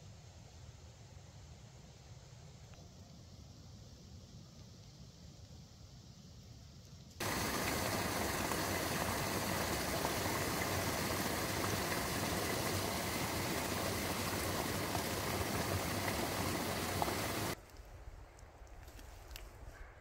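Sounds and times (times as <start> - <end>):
steady rushing noise: 7.2 - 17.6.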